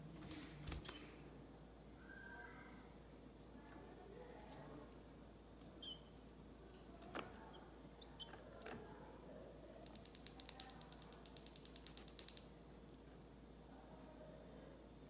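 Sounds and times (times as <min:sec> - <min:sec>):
faint clicks: 0:09.8 - 0:12.5
rapid sharp ticks: 0:09.8 - 0:12.5.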